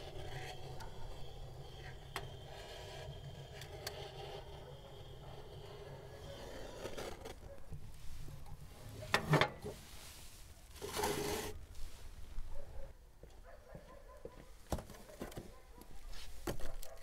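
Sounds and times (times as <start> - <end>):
wood burning in stove: 0.0 - 6.4.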